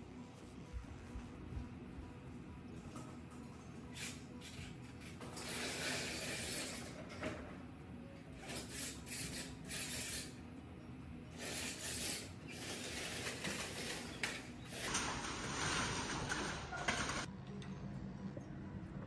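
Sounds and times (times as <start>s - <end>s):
window blind slats clattering: 13.2s - 17.3s.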